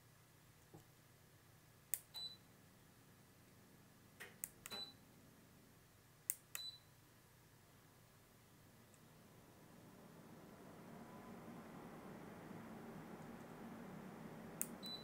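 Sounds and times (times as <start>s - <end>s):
air conditioner short high beep: 2.2s - 2.4s, 4.7s - 5.0s, 6.6s - 6.9s, 14.8s - 15.0s.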